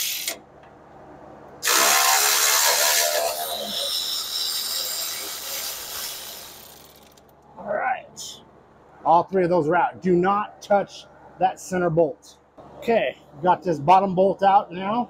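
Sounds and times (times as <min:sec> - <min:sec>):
cordless ratchet motor whirring: 0:01.6 - 0:07.3.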